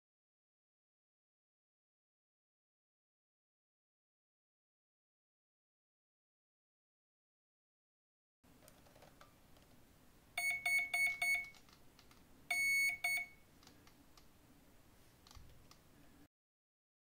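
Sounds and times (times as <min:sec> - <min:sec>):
electronic beeps: 0:10.4 - 0:11.6, 0:12.5 - 0:13.4.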